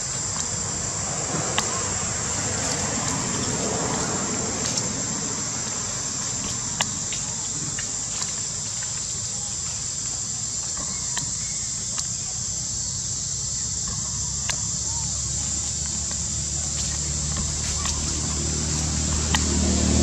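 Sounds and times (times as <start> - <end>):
dry leaves crackling: 0.0 - 12.9, 13.6 - 20.0
insects droning: 0.0 - 20.0
low outdoor hum: 0.0 - 20.0.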